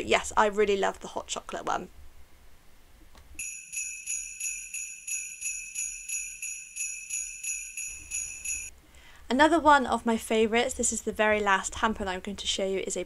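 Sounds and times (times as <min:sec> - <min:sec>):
sleigh bells jingling: 0:03.4 - 0:08.7.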